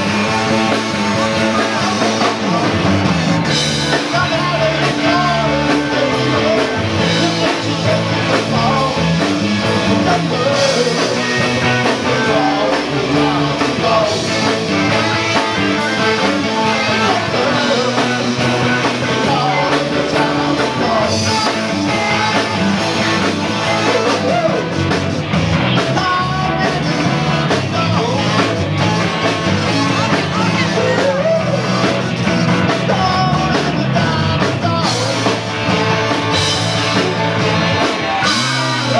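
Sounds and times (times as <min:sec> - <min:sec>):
voice at microphone: 0:00.0 - 0:09.2, 0:15.9 - 0:22.9, 0:25.8 - 0:35.5
bass guitar: 0:00.0 - 0:38.9
drums: 0:00.0 - 0:38.9
electric guitars: 0:00.0 - 0:38.9.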